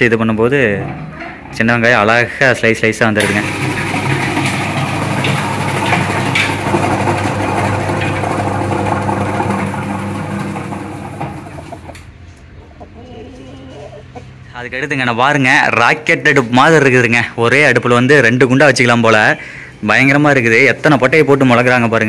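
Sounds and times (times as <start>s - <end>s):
slicing machine motor humming: 3.2s - 12.1s.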